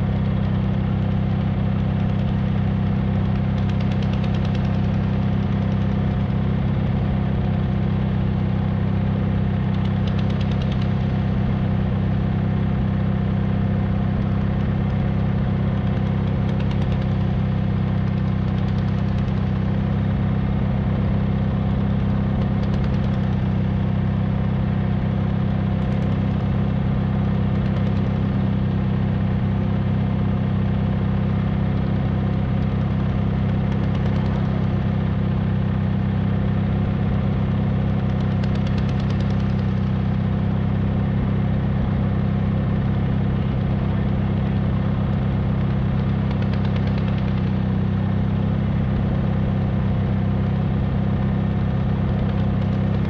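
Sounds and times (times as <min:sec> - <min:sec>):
tractor engine idling: 0:00.0 - 0:53.0.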